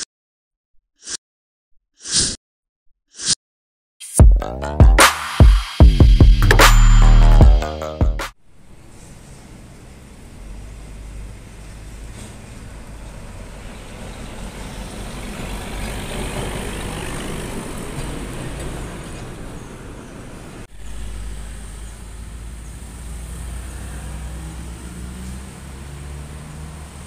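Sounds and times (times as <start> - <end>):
trucks passing on a road: 8.4 - 27.0
lighter traffic: 8.5 - 27.0.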